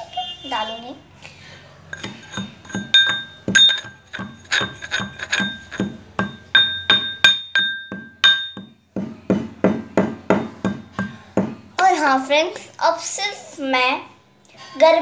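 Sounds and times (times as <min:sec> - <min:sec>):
metal pestle pounding in mortar: 0:02.0 - 0:11.6.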